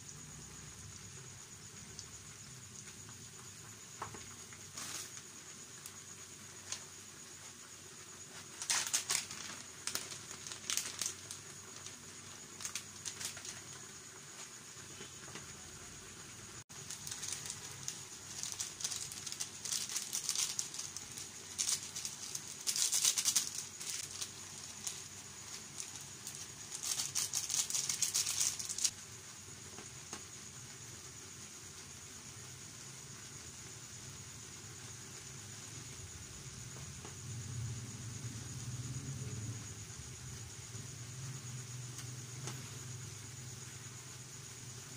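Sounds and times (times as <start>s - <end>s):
noodles stirred in a frying pan: 16.6s - 28.9s.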